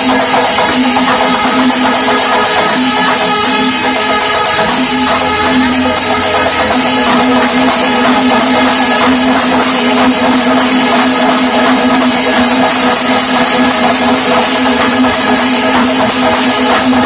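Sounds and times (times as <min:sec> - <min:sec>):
dense drumming: 0:00.0 - 0:17.0
jingling cymbals: 0:00.0 - 0:17.0
horns holding long note: 0:02.6 - 0:08.8.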